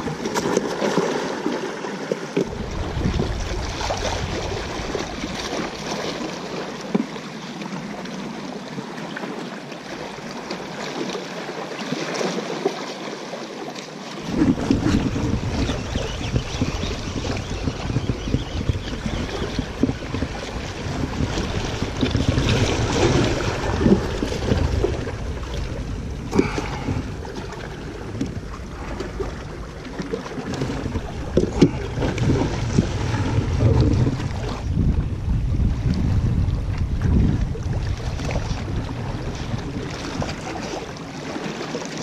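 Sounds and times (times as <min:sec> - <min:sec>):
wind buffeting microphone: 0:02.4 - 0:06.4, 0:14.2 - 0:41.0
water washing against rocks: 0:14.2 - 0:18.2, 0:18.8 - 0:34.7.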